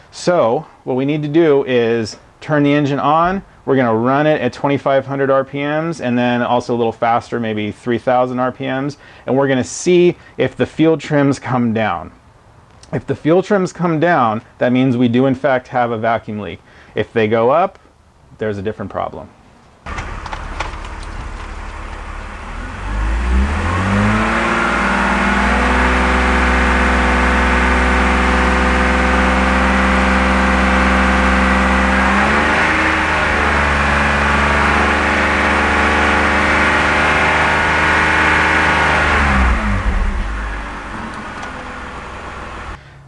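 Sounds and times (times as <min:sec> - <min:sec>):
car engine idling and revving: 0:19.9 - 0:42.8.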